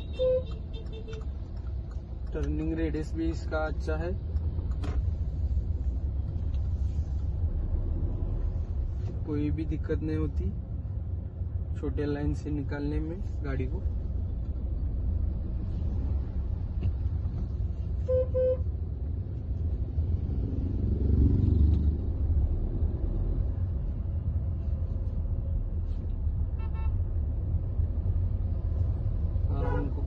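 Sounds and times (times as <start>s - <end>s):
car horn toots: 0.0s - 1.3s, 18.0s - 18.7s, 26.6s - 27.0s, 29.6s - 30.0s
road and engine rumble: 0.0s - 30.0s
higher car horn: 18.0s - 18.7s, 26.6s - 27.0s, 29.5s - 30.0s.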